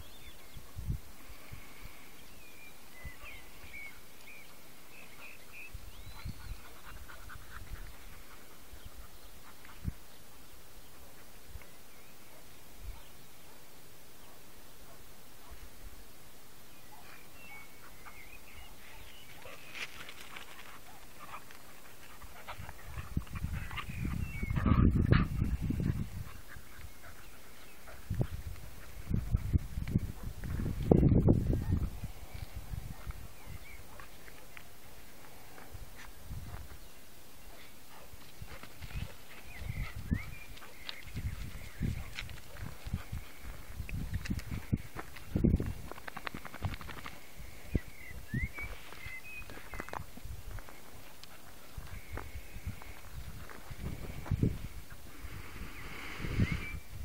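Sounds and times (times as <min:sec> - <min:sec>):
distant dogs yelping and barking: 0:05.2 - 0:15.7, 0:16.8 - 0:30.4
low rumbling on microphone: 0:22.5 - 0:26.4.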